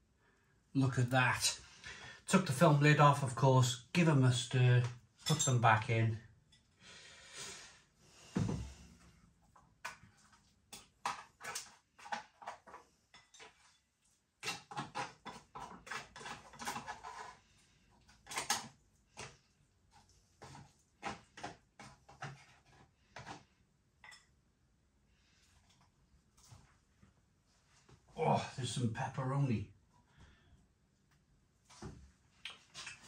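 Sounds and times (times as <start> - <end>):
thump: 8.3 - 8.8.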